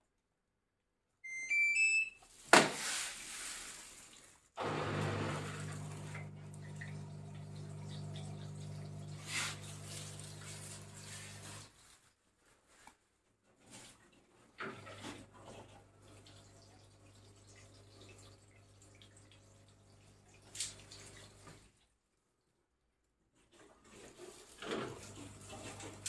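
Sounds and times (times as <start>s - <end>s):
control panel beeps: 1.2s - 2.2s
pump hum: 4.6s - 11.7s
water flowing: 4.6s - 11.7s.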